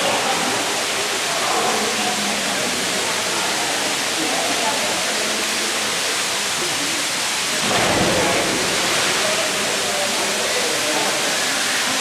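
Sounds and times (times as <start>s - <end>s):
water falling into a pool: 0.0s - 12.0s
distant voices echoing: 7.4s - 12.0s.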